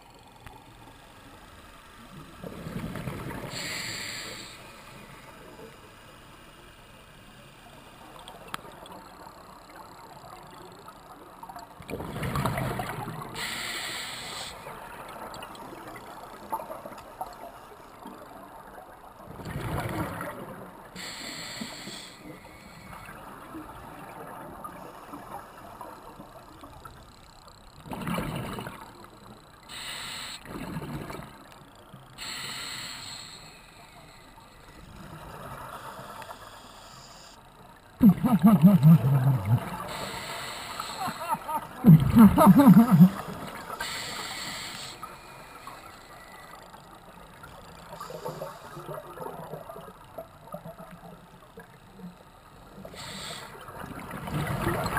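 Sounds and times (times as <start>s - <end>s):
regulator hiss on inhale: 3.4s - 7.7s, 13.4s - 14.7s, 21.0s - 23.1s, 29.6s - 30.5s, 32.2s - 34.8s, 35.7s - 37.4s, 39.8s - 41.4s, 42.8s - 46.6s, 47.9s - 48.9s, 52.8s - 53.7s
exhaled bubbles rumbling underwater: 38.0s - 40.0s, 41.6s - 43.8s, 53.0s - 54.9s.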